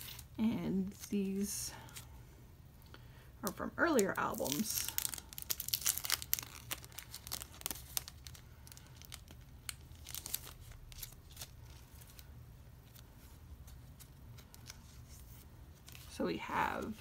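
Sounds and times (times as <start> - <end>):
plastic sleeves crinkling: 3.4 - 17.0.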